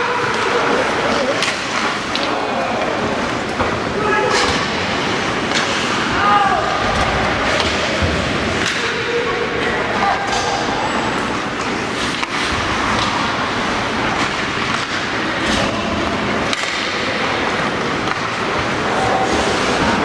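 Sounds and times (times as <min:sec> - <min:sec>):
hockey stick clacks: 0:00.0 - 0:02.4, 0:05.4 - 0:06.0, 0:07.5 - 0:09.0, 0:11.3 - 0:20.0.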